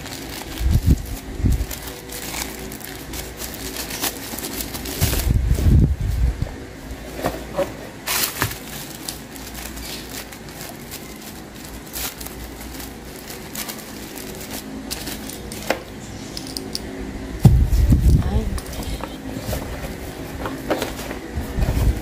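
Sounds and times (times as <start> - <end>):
plastic wrapping crinkling: 0.0 - 6.2, 7.0 - 15.7.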